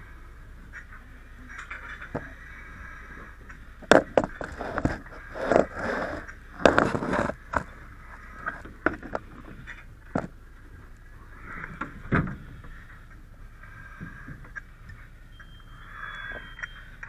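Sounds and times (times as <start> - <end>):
tools knocking and scraping: 3.8 - 7.7.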